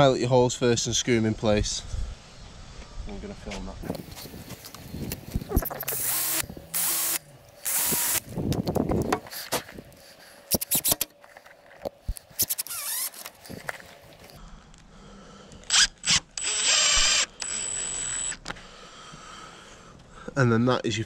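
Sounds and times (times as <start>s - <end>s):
impact driver driving screws: 5.6s - 8.2s, 10.5s - 11.1s, 12.4s - 13.3s, 15.7s - 18.4s
cordless drill drilling into steel: 5.8s - 8.2s, 12.4s - 13.2s, 15.7s - 18.4s.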